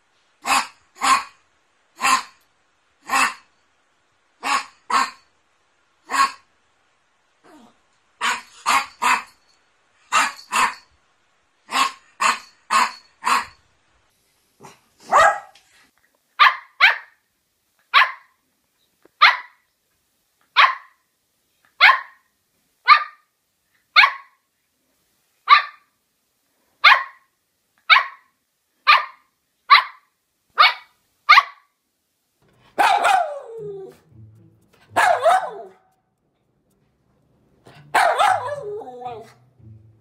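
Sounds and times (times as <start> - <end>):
dog barking: 0.4 - 1.4, 6.1 - 6.4, 10.1 - 10.8, 11.7 - 13.6, 15.0 - 15.6, 16.4 - 17.2, 17.9 - 18.4, 19.2 - 19.6, 20.6 - 21.0, 21.8 - 22.3, 22.9 - 23.3, 24.0 - 24.4, 25.5 - 25.9, 26.8 - 27.3, 27.9 - 28.3, 28.9 - 31.7, 32.8 - 33.6, 35.0 - 35.9, 37.9 - 39.3.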